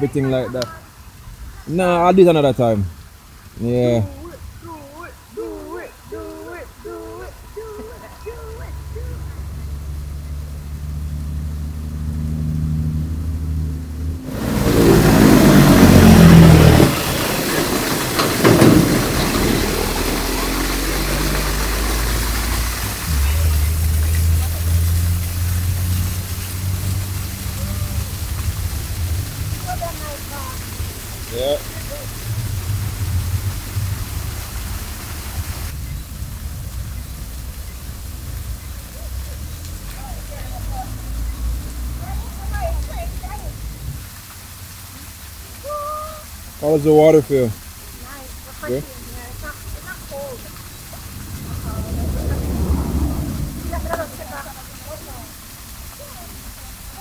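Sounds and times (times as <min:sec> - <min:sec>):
vehicle engine humming: 0:02.2 - 0:45.7, 0:47.2 - 0:57.0
loud rushing noise: 0:10.8 - 0:35.8, 0:50.1 - 0:54.9.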